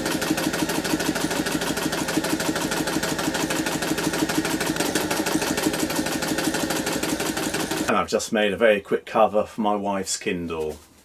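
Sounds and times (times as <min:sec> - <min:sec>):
sewing machine motor hum: 0:00.0 - 0:07.9
sewing machine needle beat: 0:00.0 - 0:07.9.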